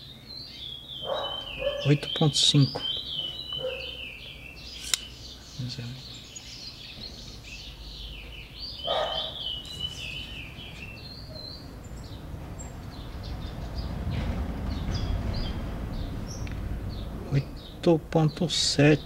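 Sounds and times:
birds chirping and singing: 0.0s - 19.0s
low rumble: 9.7s - 17.8s.

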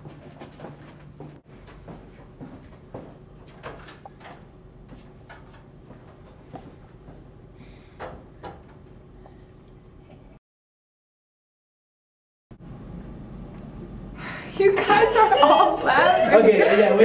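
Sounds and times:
footsteps on hard floor: 0.0s - 7.3s.

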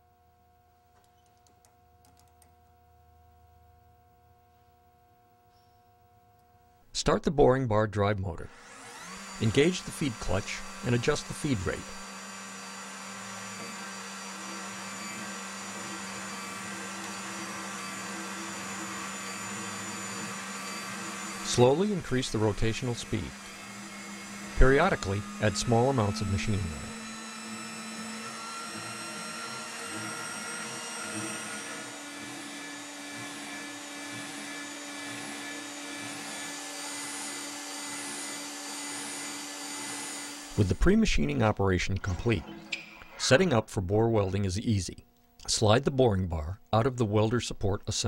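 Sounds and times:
electric motor hum: 8.4s - 42.6s.

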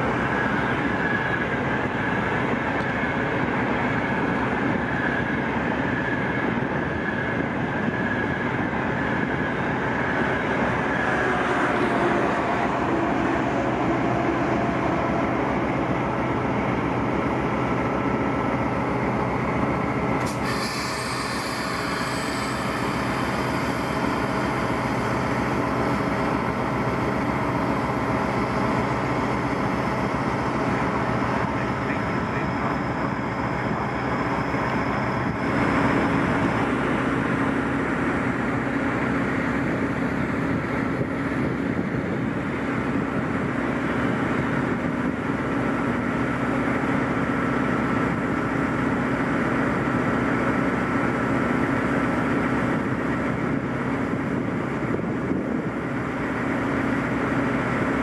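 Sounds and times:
train wheels rumbling on rails: 0.0s - 58.0s
faint high whine: 20.2s - 37.4s.

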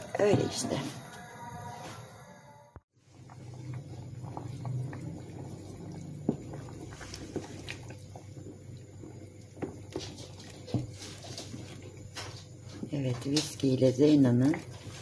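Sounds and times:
stew simmering: 2.9s - 15.0s
wooden spoon stirring: 3.0s - 15.0s.

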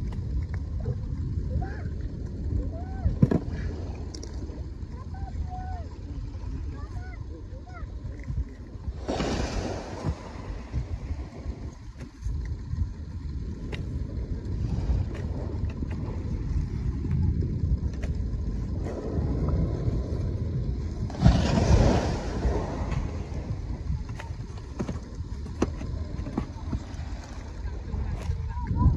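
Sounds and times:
wind buffeting microphone: 0.0s - 28.9s.

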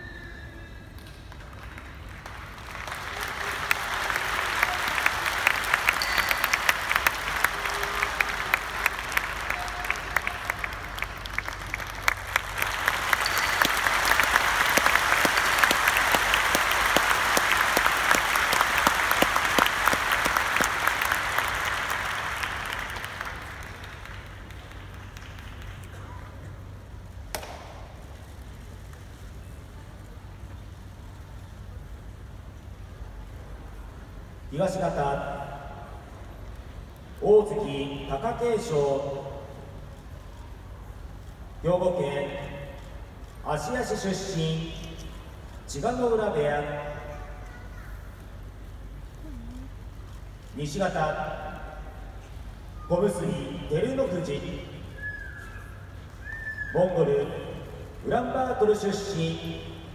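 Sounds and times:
arena audience applauding: 0.8s - 34.4s.

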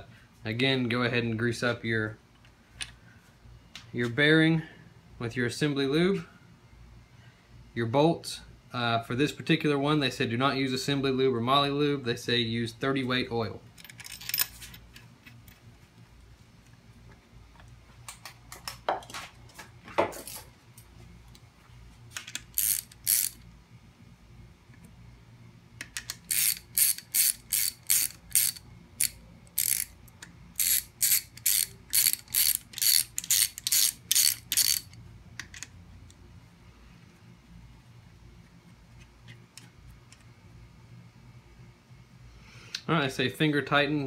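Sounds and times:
socket ratchet clicking: 22.2s - 23.4s, 25.8s - 35.7s.

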